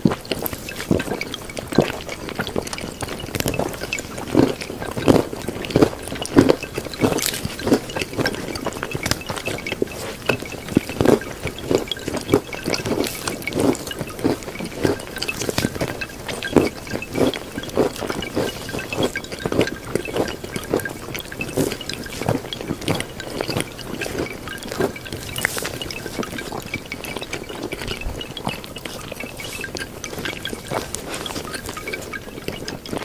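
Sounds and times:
water dripping and plopping: 0:00.0 - 0:33.0.

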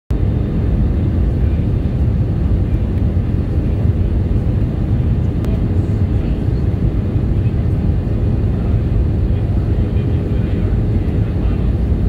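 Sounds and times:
airplane engines rumbling: 0:00.1 - 0:12.0.

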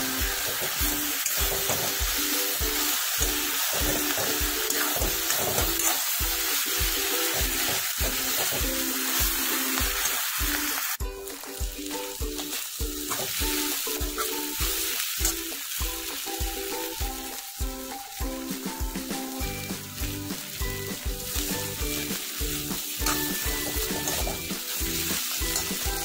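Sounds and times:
background music with beat: 0:00.0 - 0:26.0
noodles sizzling in a wok: 0:00.0 - 0:26.0
metal spoon stirring in wok: 0:00.2 - 0:10.3, 0:21.3 - 0:26.0.

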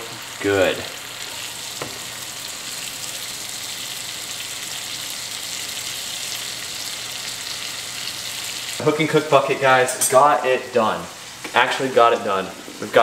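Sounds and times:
meat sizzling in a skillet: 0:00.0 - 0:13.0.

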